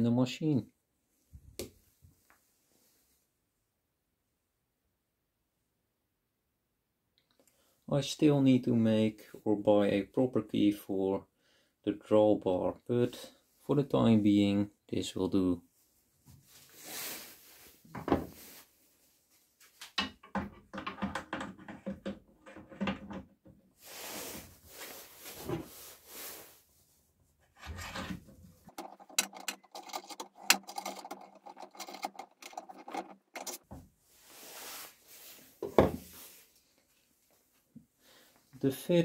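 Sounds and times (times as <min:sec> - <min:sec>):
metal scraping and rubbing: 0:27.4 - 0:33.6
rapid metallic clicks: 0:28.7 - 0:33.6.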